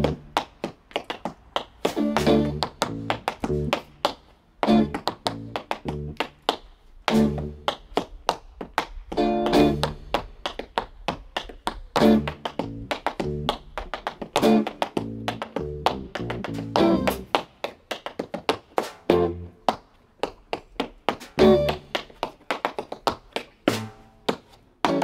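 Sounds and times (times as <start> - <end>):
jazz guitar and bass: 0.0 - 0.3, 1.9 - 4.0, 4.6 - 6.3, 7.1 - 7.7, 9.2 - 10.0, 12.0 - 13.6, 14.4 - 17.4, 19.1 - 19.6, 21.4 - 22.0.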